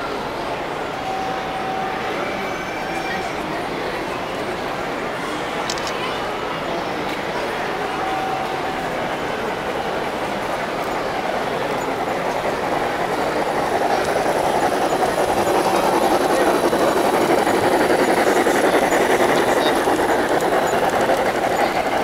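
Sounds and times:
model train wheels clattering: 0:07.0 - 0:22.0.

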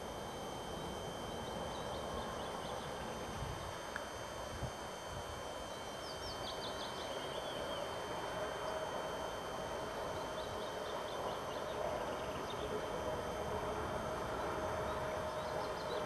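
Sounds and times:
diesel locomotive engine drone: 0:00.0 - 0:16.0
small birds chirping: 0:00.8 - 0:03.8, 0:05.7 - 0:08.0, 0:10.2 - 0:12.9, 0:14.3 - 0:16.0.

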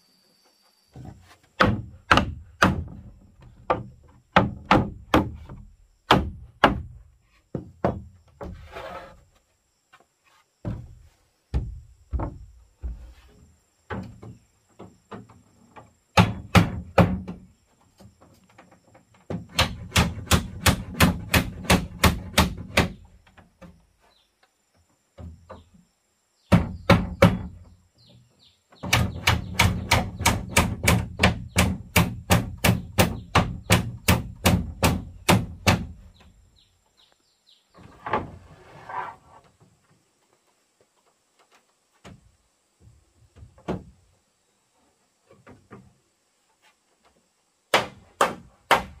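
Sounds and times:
short scraping noise: 0:08.5 - 0:09.4, 0:37.9 - 0:39.4
hammer driving nails into wood: 0:19.3 - 0:23.0, 0:28.8 - 0:36.0.

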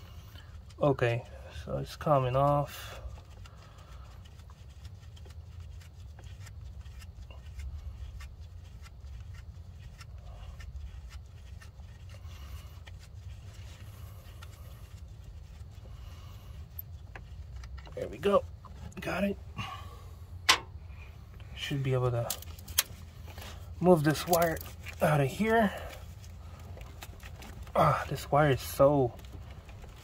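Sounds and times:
steady low hum: 0:00.0 - 0:30.0
metal nut clicking and scraping: 0:22.2 - 0:23.4.

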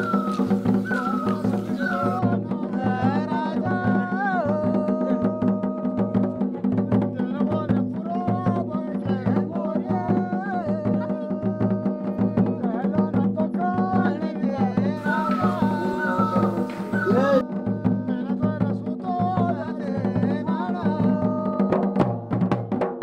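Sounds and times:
hiss: 0:00.0 - 0:02.2, 0:15.0 - 0:17.4
hand drum beat: 0:00.0 - 0:23.0.

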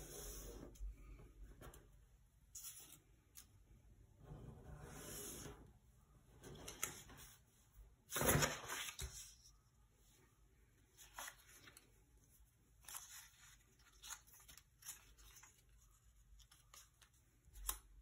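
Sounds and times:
paper rustling and crinkling: 0:08.1 - 0:09.5, 0:10.9 - 0:18.0.

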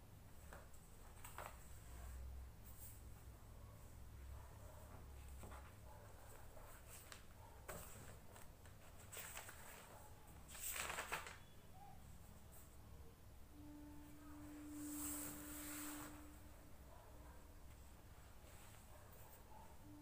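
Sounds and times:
paper rustling: 0:00.4 - 0:02.1, 0:05.2 - 0:11.6.

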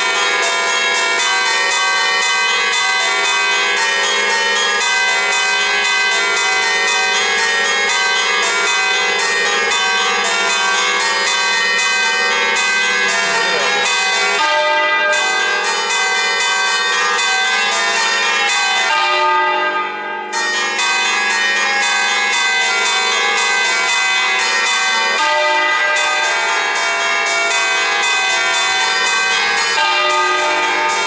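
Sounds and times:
church bells pealing: 0:00.0 - 0:31.0.

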